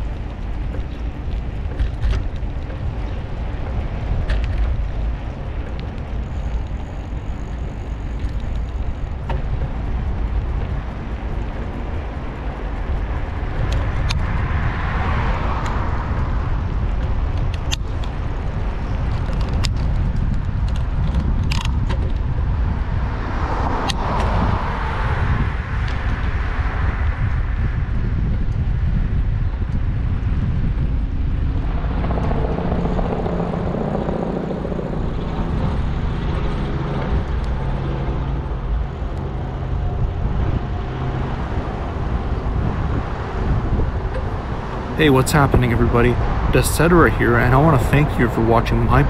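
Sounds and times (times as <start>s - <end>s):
city traffic noise: 0.0s - 49.0s
wind rushing over microphone: 0.0s - 49.0s.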